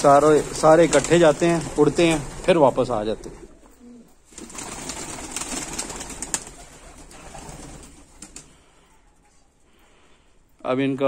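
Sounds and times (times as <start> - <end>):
pigeon wings flapping: 0.1 - 3.5, 4.3 - 8.7.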